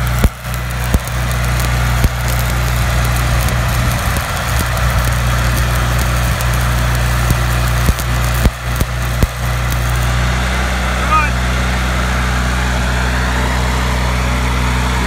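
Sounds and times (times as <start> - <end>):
welding arc crackling and sizzling: 0.0 - 11.1
low hum: 0.0 - 15.0.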